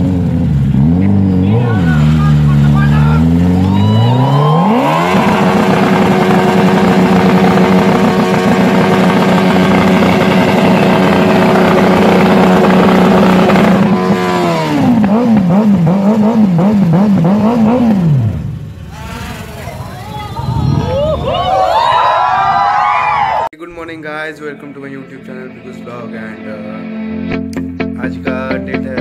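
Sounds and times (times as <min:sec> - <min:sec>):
motorcycle engine revving: 0:00.0 - 0:20.9.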